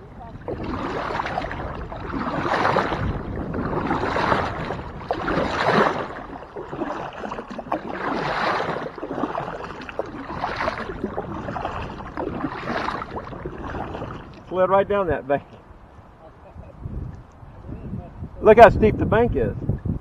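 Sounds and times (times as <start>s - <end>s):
paddle splashing through water: 0.0s - 14.9s.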